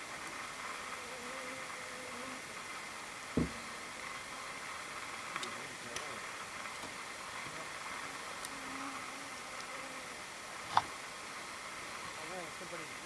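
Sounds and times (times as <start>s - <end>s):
faint outdoor background hiss: 0.0s - 13.0s
faint ticks: 5.3s - 7.0s, 8.4s - 8.6s, 9.5s - 9.8s.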